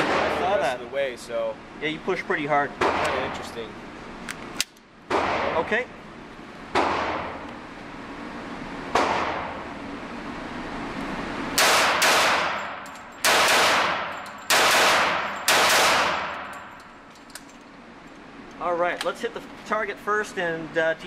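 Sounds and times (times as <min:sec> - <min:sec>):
pistol shots echoing indoors: 0:11.6 - 0:16.6.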